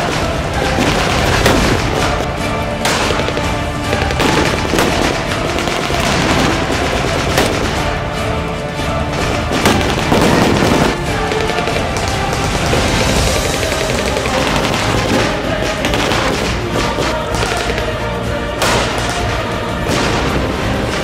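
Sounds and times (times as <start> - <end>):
blank gunfire bursts: 0.0 - 8.3, 9.1 - 21.0
background music: 0.0 - 21.0
pyrotechnic explosions: 0.0 - 21.0.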